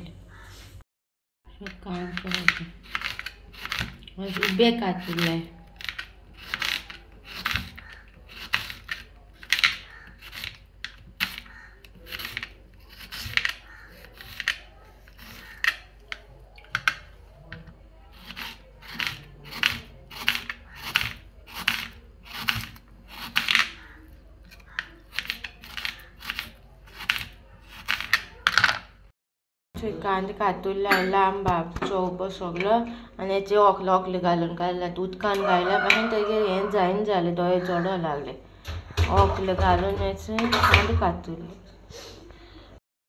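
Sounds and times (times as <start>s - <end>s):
knife slicing onion: 2.0s - 17.0s, 18.1s - 28.6s.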